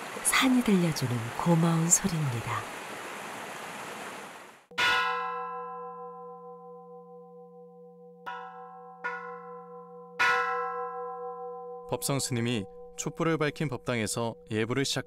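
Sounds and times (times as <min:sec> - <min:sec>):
stream rushing over rocks: 0:00.0 - 0:04.7
temple bell ringing: 0:04.7 - 0:15.0.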